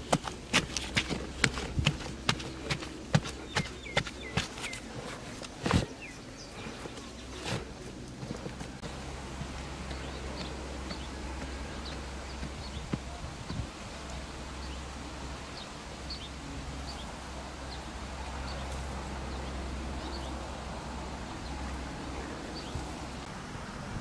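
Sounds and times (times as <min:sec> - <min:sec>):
wind rumble on microphone: 0:00.0 - 0:04.3, 0:08.4 - 0:17.2, 0:18.1 - 0:24.0.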